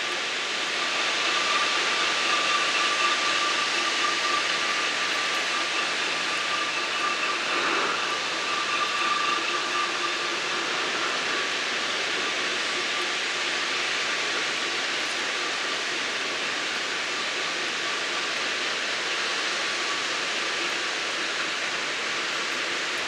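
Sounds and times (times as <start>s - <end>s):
high-pitched whine: 0.0s - 23.0s.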